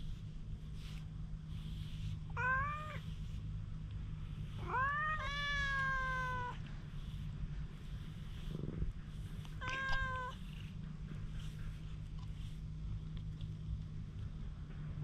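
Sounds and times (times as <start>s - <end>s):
cat meowing: 2.4s - 3.1s, 4.6s - 6.6s, 9.6s - 10.5s.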